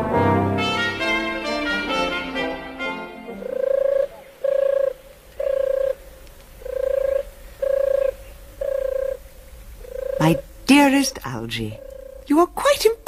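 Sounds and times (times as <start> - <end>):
doves cooing: 3.0 - 12.6.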